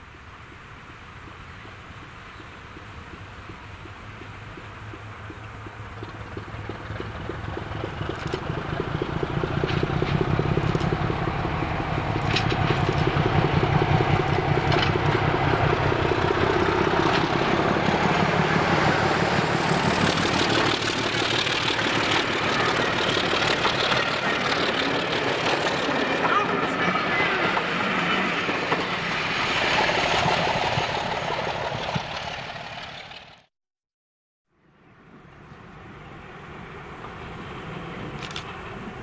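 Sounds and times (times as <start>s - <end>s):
diesel locomotive engine rumble: 0.0s - 33.5s, 34.8s - 39.0s
train wheels clattering on track: 3.4s - 33.4s.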